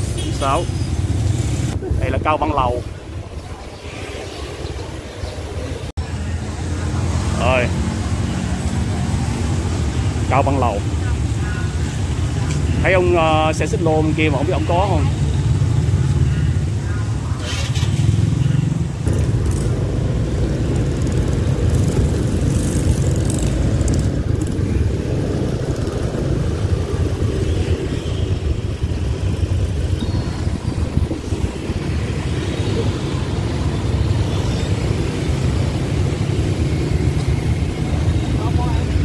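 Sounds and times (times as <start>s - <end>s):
passing motorbikes: 0.0s - 39.0s
scooter engine: 15.4s - 39.0s
wind rumble on microphone: 19.1s - 34.2s.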